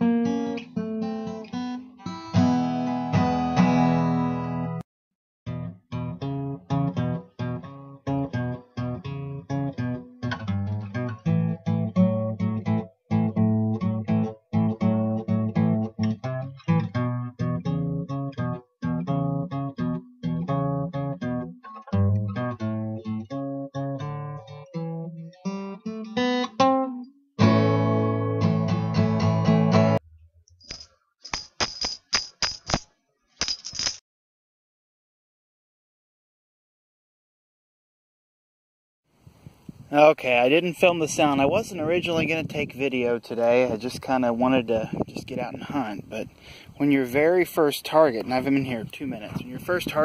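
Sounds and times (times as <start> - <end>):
strummed guitar chords: 0.0 - 4.8, 5.5 - 30.4
sharp high-pitched clicks: 30.5 - 33.8.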